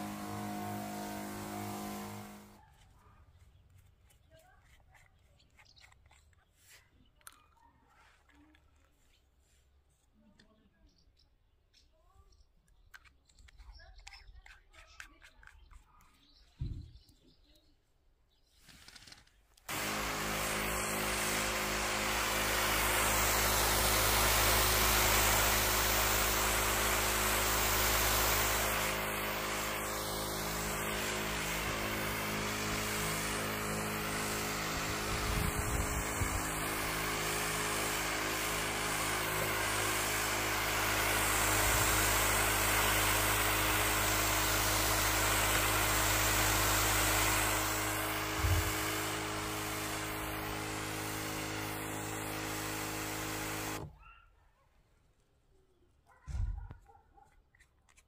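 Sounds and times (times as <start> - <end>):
electric pump humming: 0.0 - 2.6, 19.7 - 54.0
water spraying hiss: 0.0 - 2.6, 19.7 - 53.9.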